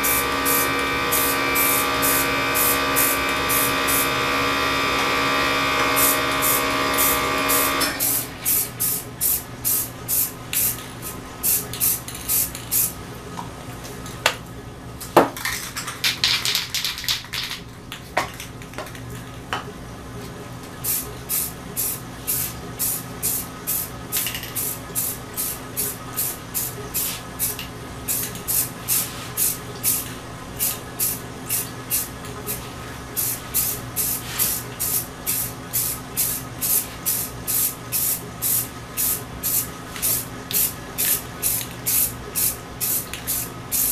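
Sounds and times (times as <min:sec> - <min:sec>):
spray paint can hissing: 0:00.0 - 0:04.1, 0:06.0 - 0:12.9, 0:20.8 - 0:32.6, 0:33.2 - 0:43.9
steady hum: 0:00.0 - 0:15.1.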